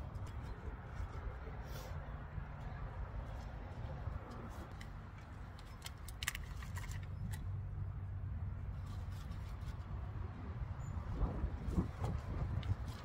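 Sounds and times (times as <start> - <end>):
plastic pot crinkling and clicking: 4.7 - 7.5
low wind rumble on microphone: 6.5 - 13.0.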